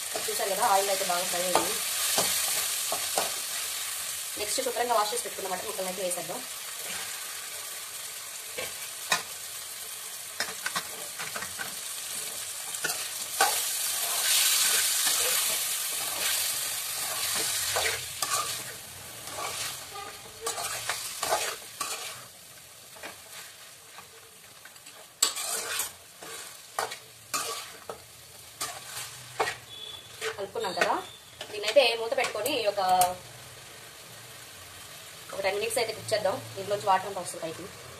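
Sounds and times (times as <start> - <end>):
meat sizzling in a pan: 0.0 - 37.9
spoon scraping a pan: 10.4 - 22.3, 24.8 - 32.4.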